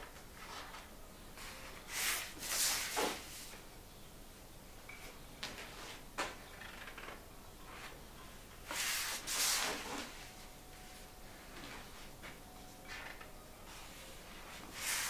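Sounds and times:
paper sliding over paper: 14.6s - 15.0s.

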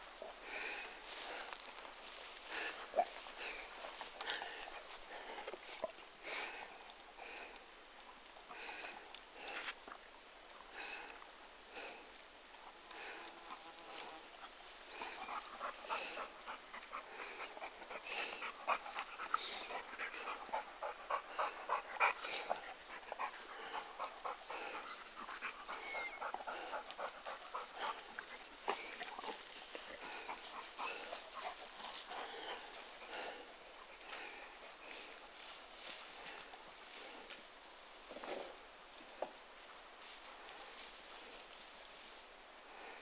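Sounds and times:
dogs panting: 0.0s - 7.5s, 12.9s - 37.3s.

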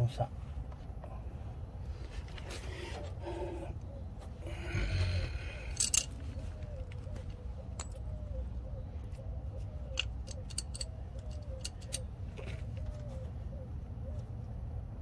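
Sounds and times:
low outdoor rumble: 0.0s - 15.0s
light metallic clinks: 5.7s - 6.2s, 9.9s - 12.0s.

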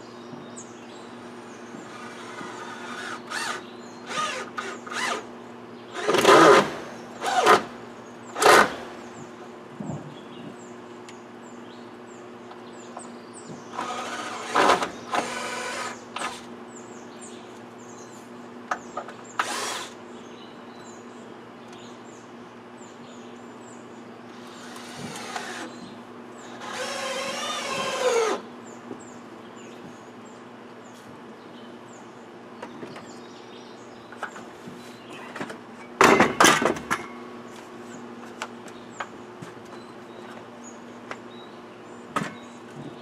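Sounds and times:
power drill motor whining: 1.8s - 5.3s, 13.8s - 16.4s, 19.4s - 20.0s, 24.5s - 25.8s, 26.5s - 28.4s.

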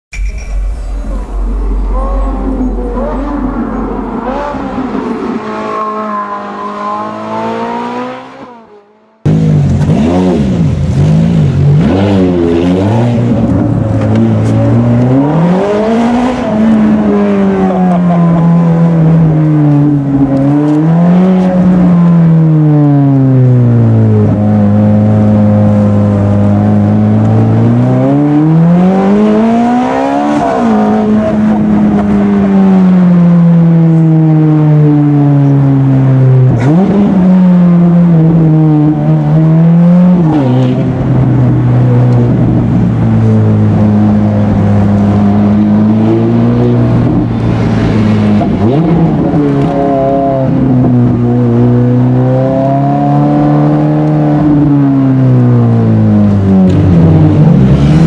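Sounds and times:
intro sound: 0.1s - 5.7s
car engine revving: 0.1s - 58.0s.

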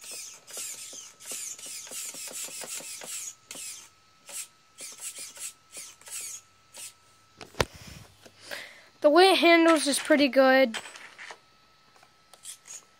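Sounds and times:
toy truck motor whirring: 0.0s - 7.0s, 12.3s - 12.9s
faint steady whine: 0.0s - 12.9s.

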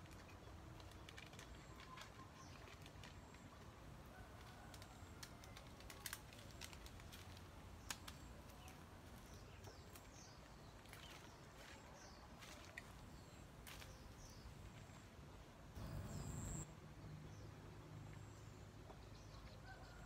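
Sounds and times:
faint high bird chirps: 15.8s - 16.6s.

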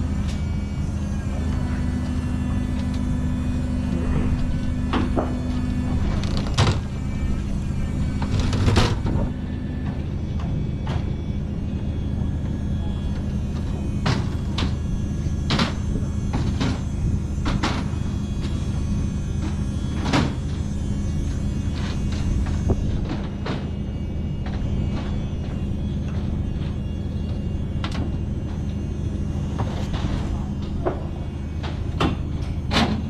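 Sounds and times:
low machine hum: 0.0s - 33.0s
sharp knocks and clanks: 4.9s - 6.9s, 29.6s - 33.0s.

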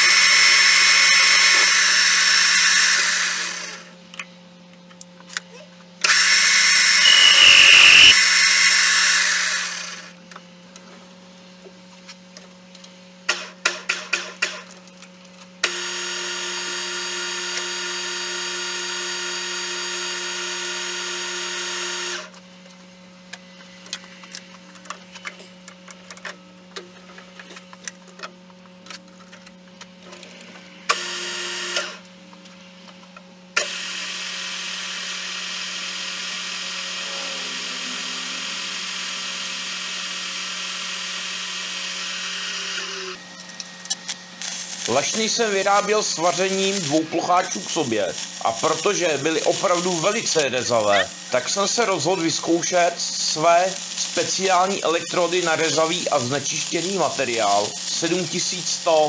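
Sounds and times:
lathe cutting steel rod: 0.0s - 3.9s, 6.0s - 10.2s, 34.8s - 43.2s
lathe gear whine: 0.0s - 4.0s, 6.0s - 10.2s, 33.6s - 59.0s
low hum: 36.8s - 40.8s.

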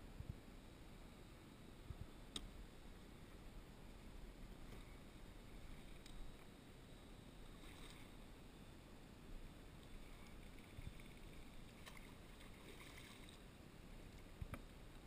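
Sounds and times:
faint low rumble: 0.0s - 15.0s
faint ticks: 5.7s - 6.5s.

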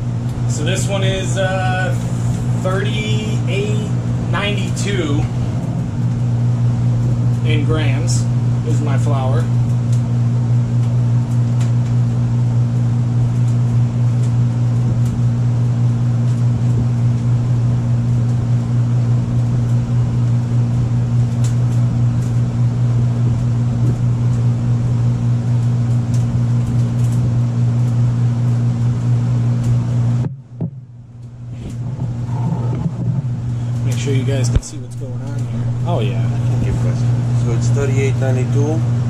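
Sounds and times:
low mechanical hum of machinery: 0.0s - 39.0s.

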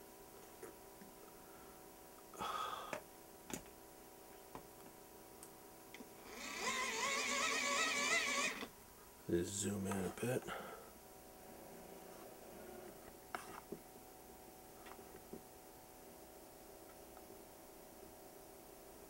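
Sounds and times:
hand-crank dynamo whirring: 6.2s - 8.7s.

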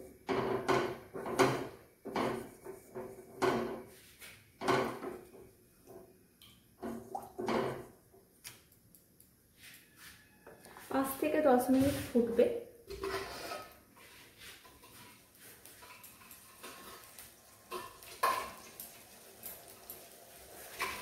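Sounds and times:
spatula scraping a metal pan: 12.9s - 18.6s, 20.6s - 21.0s.

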